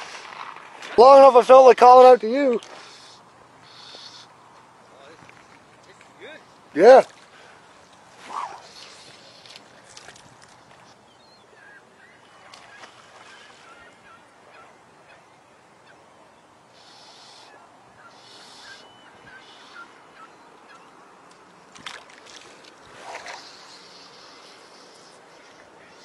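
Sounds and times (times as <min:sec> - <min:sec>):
faint bird calls: 0:02.7 - 0:06.4, 0:10.7 - 0:21.1, 0:23.1 - 0:26.0.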